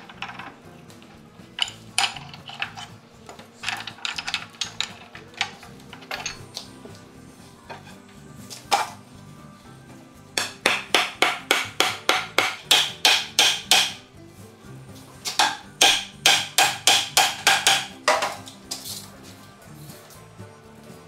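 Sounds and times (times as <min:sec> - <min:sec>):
background music: 0:00.0 - 0:21.0
rapid hammer blows on wood: 0:10.4 - 0:14.0, 0:15.3 - 0:18.0.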